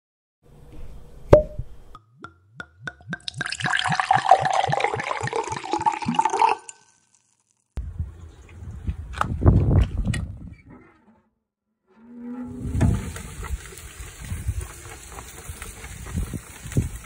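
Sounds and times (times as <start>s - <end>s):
liquid dripping: 2.2s - 7.3s
liquid pouring into glass: 2.9s - 7.4s.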